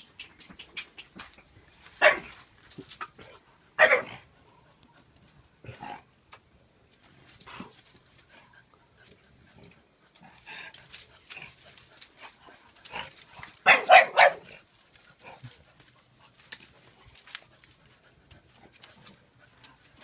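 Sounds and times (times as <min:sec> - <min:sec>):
quiet dog noises: 0:00.0 - 0:20.0
dog barking: 0:02.0 - 0:02.3, 0:03.8 - 0:04.2, 0:13.6 - 0:14.5.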